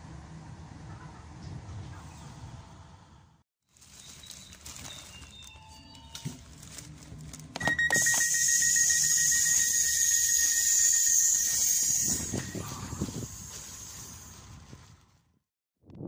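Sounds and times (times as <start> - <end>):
high warning tone: 7.6 - 13.6
loud door hiss: 8.6 - 14.1.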